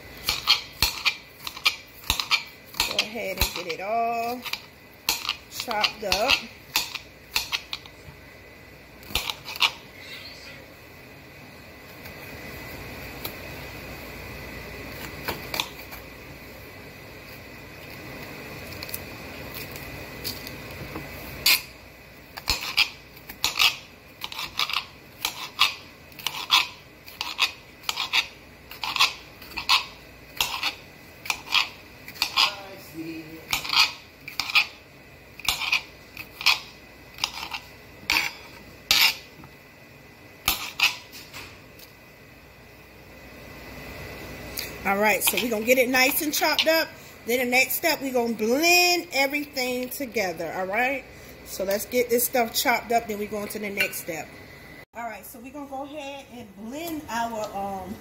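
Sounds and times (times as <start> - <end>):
faint steady hum: 0.0 - 58.0
knife slicing on stone surface: 22.4 - 32.6, 33.5 - 34.8, 35.4 - 39.3, 40.4 - 41.2.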